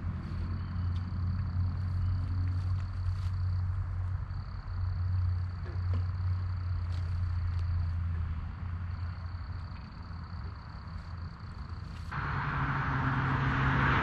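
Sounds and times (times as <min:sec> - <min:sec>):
footsteps in brush: 0:01.8 - 0:03.8, 0:06.7 - 0:07.9, 0:10.9 - 0:12.2.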